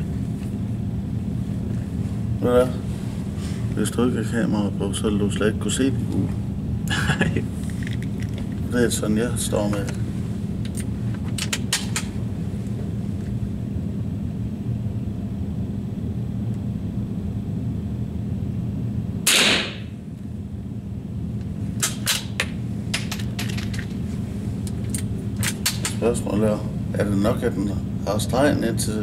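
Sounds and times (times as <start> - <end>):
steady low hum: 0.0 - 29.0
rifle shot: 19.2 - 19.9.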